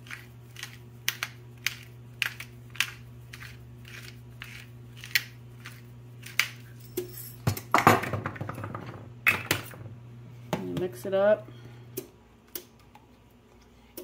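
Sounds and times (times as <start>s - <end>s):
pepper mill grinding: 0.0s - 7.3s.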